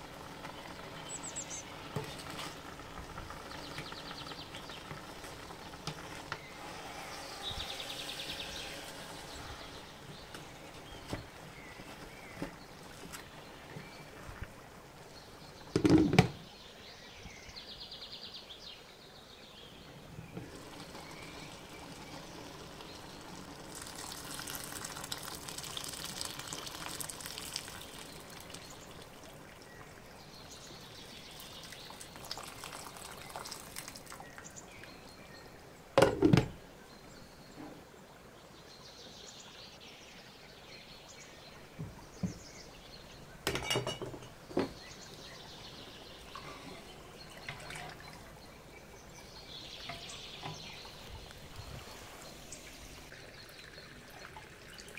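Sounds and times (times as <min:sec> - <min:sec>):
liquid pouring: 0:20.3 - 0:30.1, 0:30.8 - 0:34.8, 0:46.3 - 0:48.5, 0:49.8 - 0:54.9
cookware clatter: 0:43.5 - 0:44.4.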